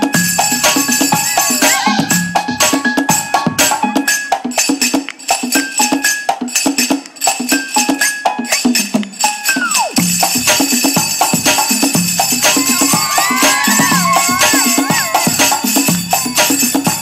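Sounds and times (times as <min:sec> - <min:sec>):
dance music over loudspeaker: 0:00.0 - 0:04.5, 0:09.9 - 0:17.0
jingling percussion: 0:00.0 - 0:17.0
hand-drum strokes: 0:08.6 - 0:17.0.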